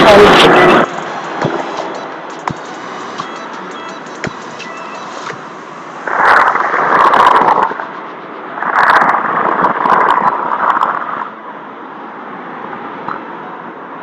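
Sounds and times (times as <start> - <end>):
jet engines running: 0.0 - 9.9.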